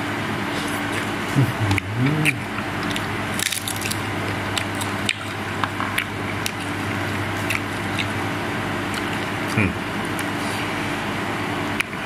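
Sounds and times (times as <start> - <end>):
steady low hum: 0.0 - 12.0
wet chewing: 0.5 - 8.2, 8.9 - 10.5.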